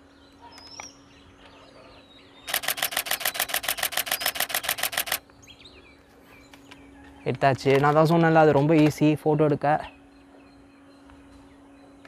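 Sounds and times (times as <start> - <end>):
camera shutter burst clicks: 2.5 - 5.2.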